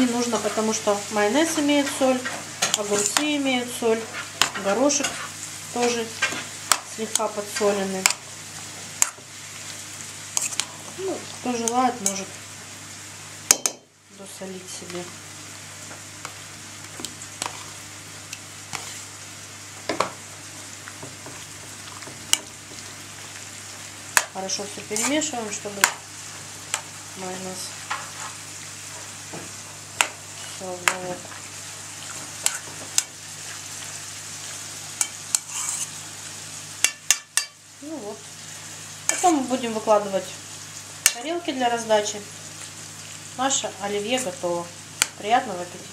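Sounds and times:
soft wet scraping: 35.4s - 36.0s.

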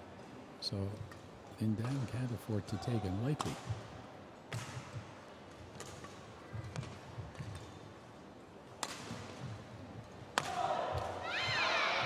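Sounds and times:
racket striking shuttlecock: 5.7s - 7.7s, 8.8s - 9.5s, 10.3s - 11.1s.

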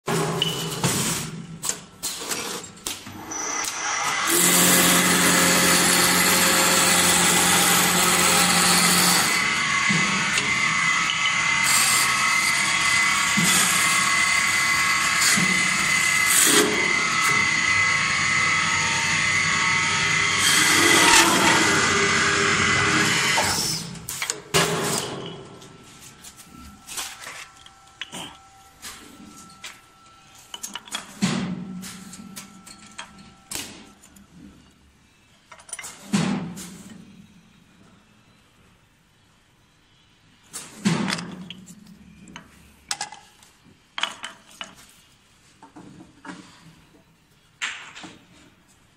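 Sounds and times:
wood lathe motor and cutting: 3.2s - 23.9s.

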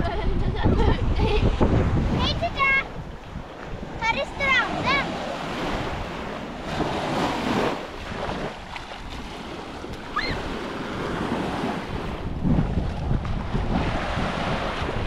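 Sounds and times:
wind buffeting microphone: 0.0s - 15.0s
waves washing onto sandy beach: 1.1s - 15.0s
brief high cry: 10.1s - 10.4s.

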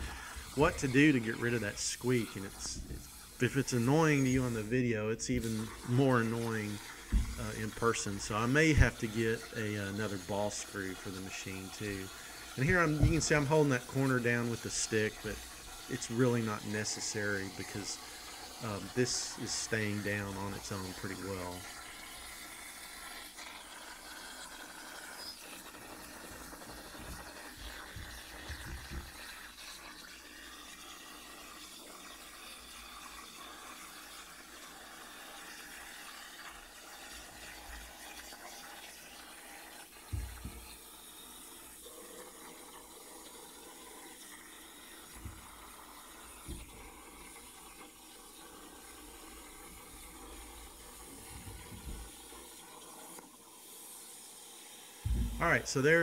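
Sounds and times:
plasma cutter hissing: 0.0s - 21.5s
low thumps: 7.1s - 7.5s, 55.1s - 55.8s.

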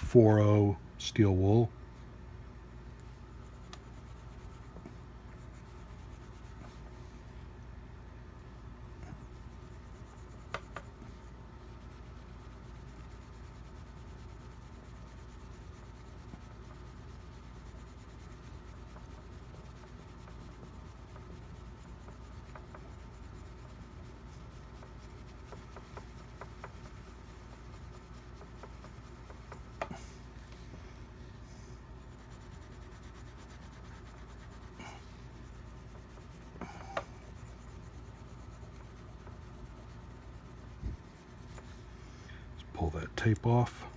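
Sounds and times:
steel wool rubbing on metal: 9.1s - 30.5s, 31.4s - 42.0s.

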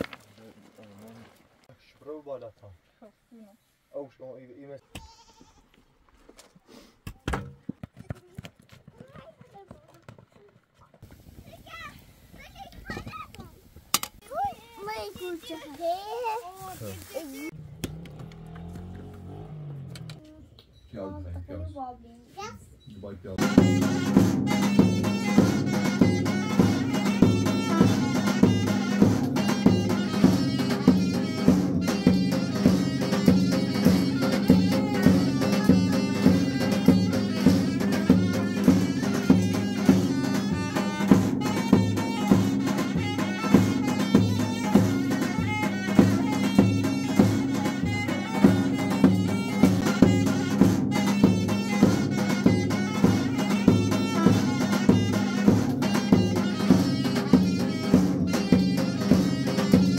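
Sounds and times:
steady drum beat: 23.4s - 59.9s.

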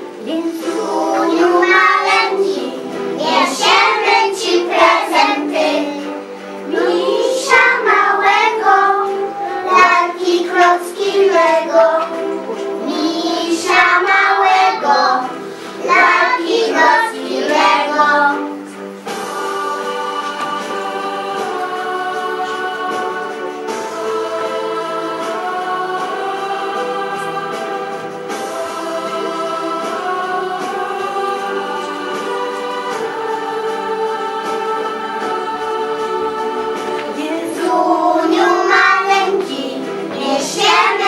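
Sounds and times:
children singing: 0.0s - 41.0s
instrumental accompaniment: 0.0s - 41.0s.

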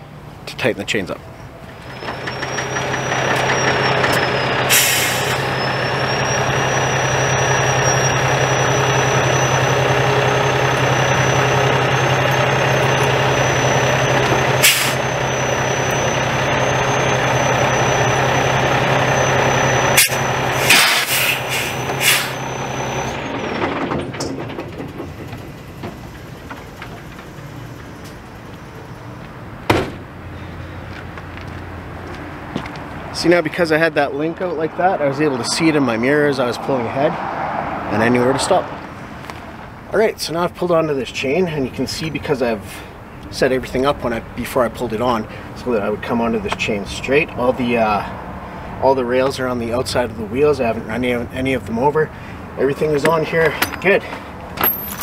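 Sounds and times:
diesel truck engine running: 1.4s - 55.0s
air brake hisses: 4.7s - 5.5s, 14.6s - 15.0s, 20.0s - 22.5s.

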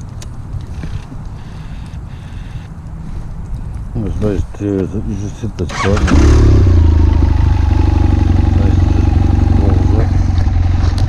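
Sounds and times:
motorcycle engine idling: 5.7s - 11.0s.

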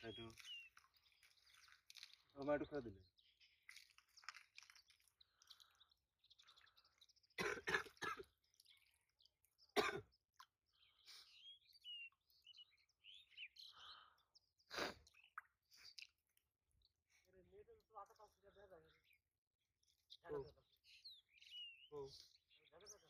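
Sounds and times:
faint high bird chirps: 0.0s - 23.0s
person coughing: 7.4s - 8.3s, 9.8s - 10.0s.

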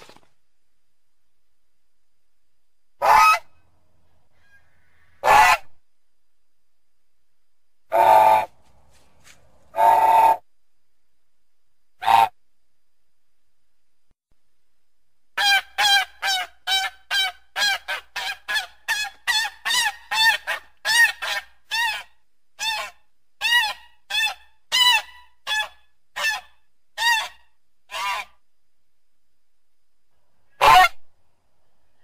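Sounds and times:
goose honking: 30.6s - 31.0s.

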